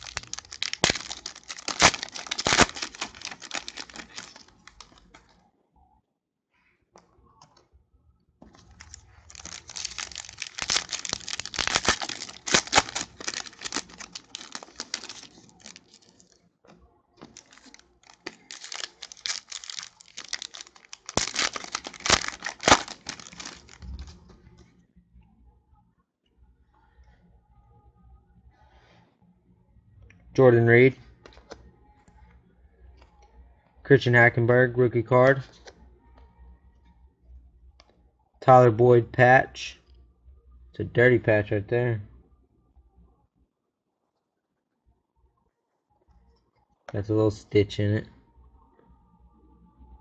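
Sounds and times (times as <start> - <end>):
foil wrappers tearing and crinkling: 0.0 - 5.2, 8.6 - 16.2, 17.2 - 24.1.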